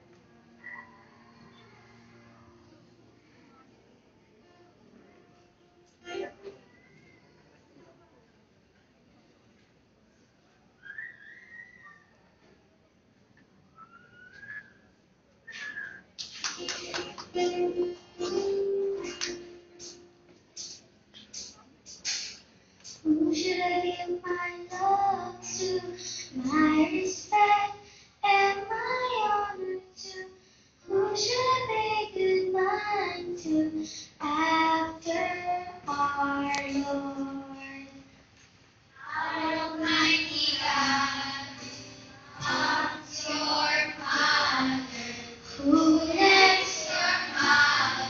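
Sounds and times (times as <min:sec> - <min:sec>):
children singing into microphones: 0:23.0 - 0:30.2, 0:30.8 - 0:37.8, 0:39.0 - 0:48.0.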